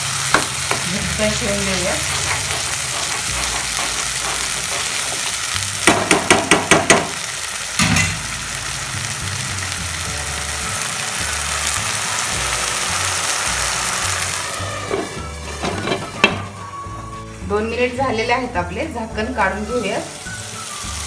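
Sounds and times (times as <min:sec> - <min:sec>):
paste sizzling in oil: 0:00.0 - 0:21.0.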